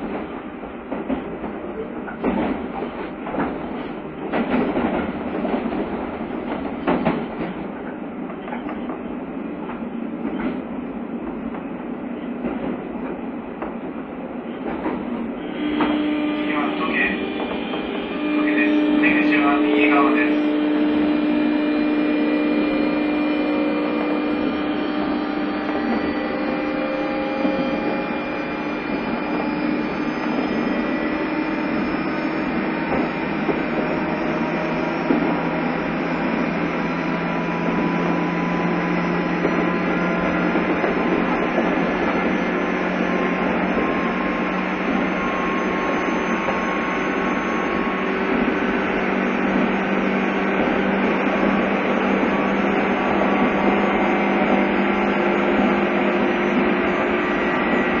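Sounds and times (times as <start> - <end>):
wheels rumbling on rail: 0.0 - 58.0
traction motor humming tones: 15.4 - 58.0.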